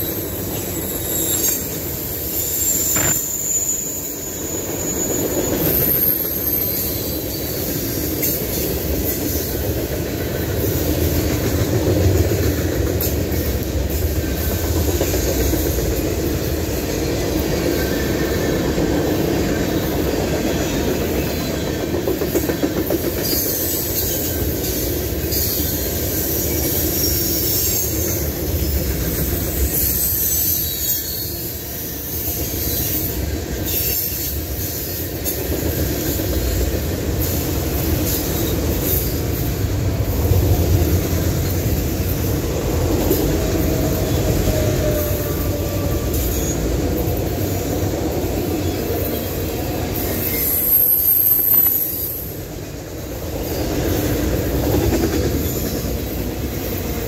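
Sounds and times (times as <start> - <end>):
train wheels rumbling on rails: 0.0 - 57.0
high-pitched wheel squeal: 0.6 - 7.7, 29.5 - 31.6, 50.0 - 52.3.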